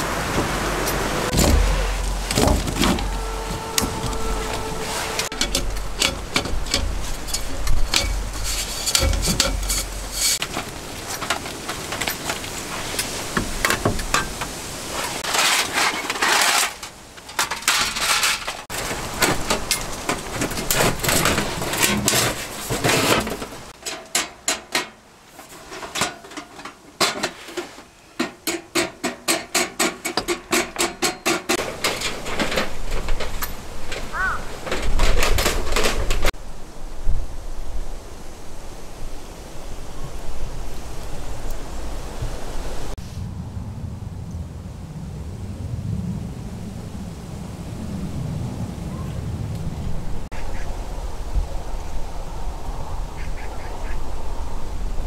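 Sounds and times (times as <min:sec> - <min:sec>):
gear knocking and clattering: 0:00.8 - 0:14.5, 0:28.2 - 0:36.4.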